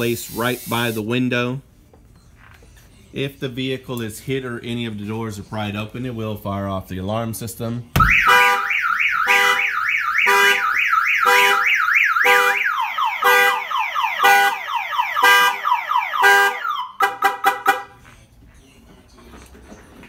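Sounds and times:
car alarm siren: 8.0 - 17.9.

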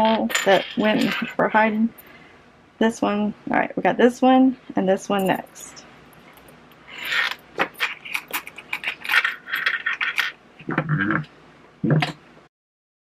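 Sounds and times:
metal zipper pulls jingling: 0.0 - 2.1, 5.2 - 10.4.

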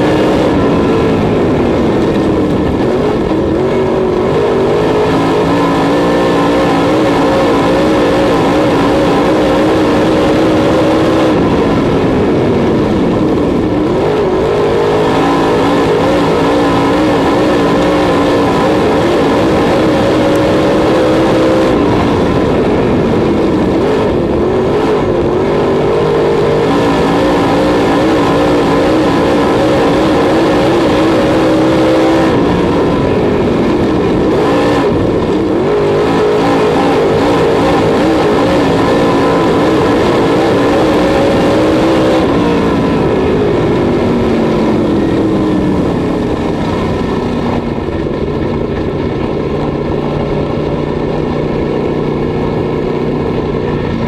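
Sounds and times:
race car engine: 0.0 - 54.0.

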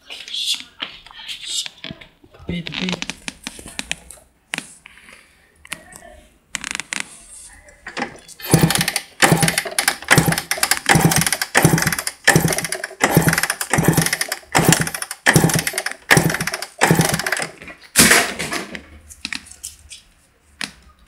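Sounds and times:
motorcycle engine cranking: 8.0 - 17.6.

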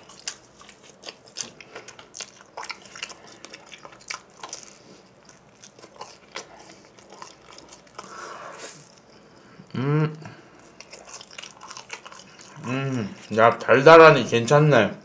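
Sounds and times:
crunchy chewing: 0.0 - 9.5, 10.3 - 14.5
person humming mmm: 9.6 - 10.4, 12.6 - 13.2.

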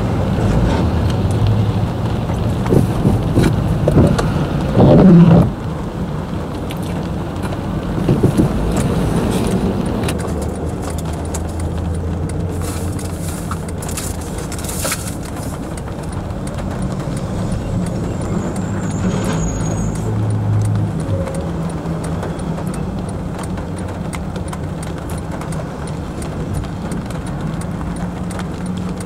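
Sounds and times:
cars passing on wet road: 0.0 - 29.0
raindrops tapping on windshield: 0.8 - 29.0
car engine idling: 1.1 - 29.0.

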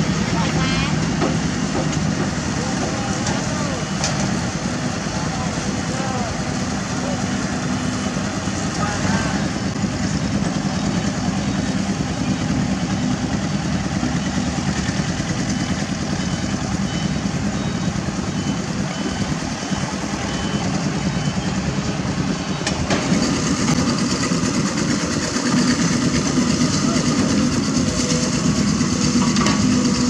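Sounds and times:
heavy diesel engines running: 0.0 - 30.0
high beeps: 3.2 - 4.2, 15.5 - 22.8.

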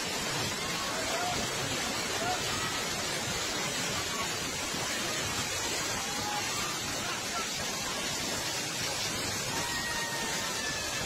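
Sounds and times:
floodwater rushing: 0.0 - 11.0.

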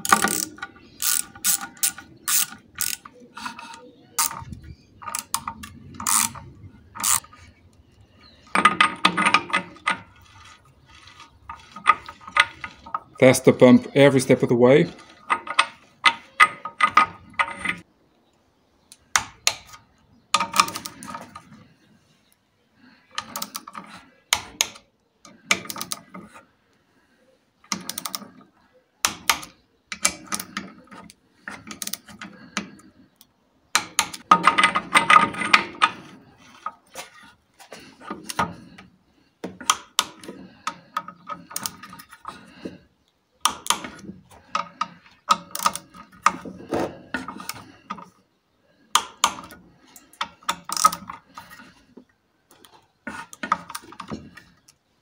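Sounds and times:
ratchet wrench clicking: 0.0 - 3.1, 5.1 - 7.2.

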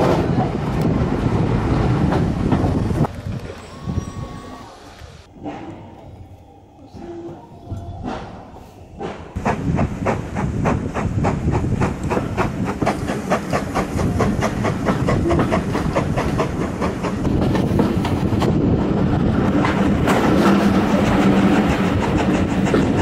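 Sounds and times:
steam engine exhaust beats: 8.0 - 23.0.

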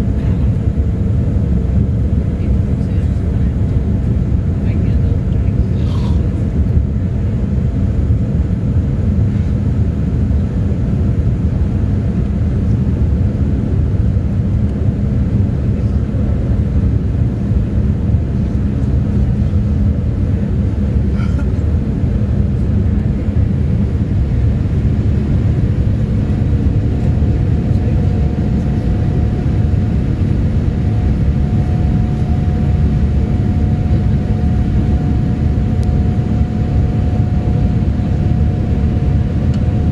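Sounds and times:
faint higher hum: 0.0 - 6.5, 15.7 - 39.9
airplane cabin rumble: 0.0 - 39.9
steady hums: 0.0 - 39.9.

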